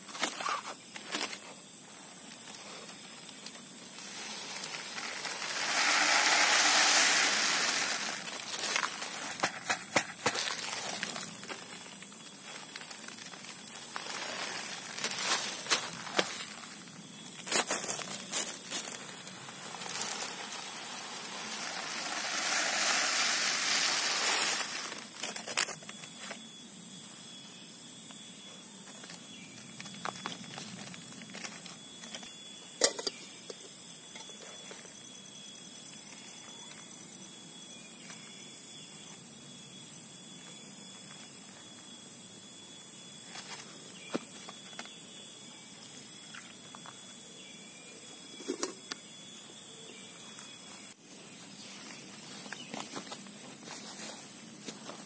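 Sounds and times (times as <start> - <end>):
high-pitched background drone: 0.0 - 55.0
rice grains pouring into tube: 4.2 - 9.0, 19.6 - 25.0.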